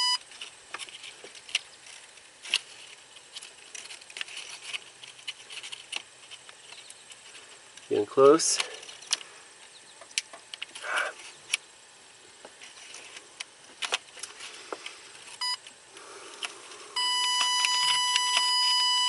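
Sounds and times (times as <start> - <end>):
wireless probe beeping: 0.0 - 0.2, 15.4 - 15.7, 17.0 - 19.0
hands rustling wiring harness: 0.0 - 9.3, 12.3 - 18.5.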